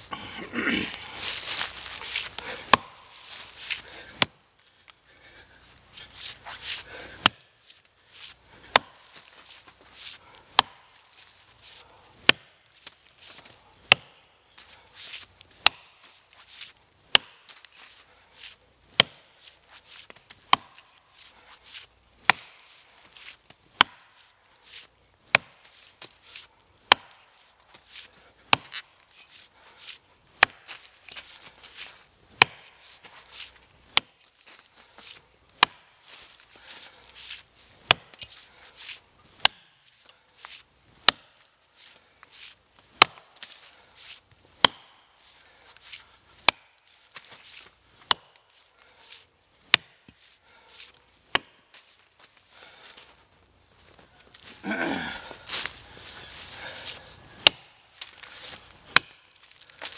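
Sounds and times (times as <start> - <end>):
axe chopping wood: 2.1 - 3.2, 4.0 - 4.4, 7.2 - 7.5, 8.6 - 9.2, 10.5 - 11.0, 12.2 - 12.6, 13.8 - 14.2, 15.6 - 16.0, 17.1 - 17.6, 18.9 - 19.4, 20.4 - 21.0, 22.2 - 22.7, 23.7 - 24.2, 25.3 - 26.2, 26.8 - 27.3, 28.4 - 28.9, 30.4 - 31.5, 32.4 - 34.2, 35.6 - 36.0, 36.6 - 38.4, 39.4 - 39.8, 41.0 - 41.4, 42.9 - 43.6, 44.6 - 45.0, 46.4 - 48.4, 49.6 - 50.2, 51.3 - 51.7, 56.9 - 59.9.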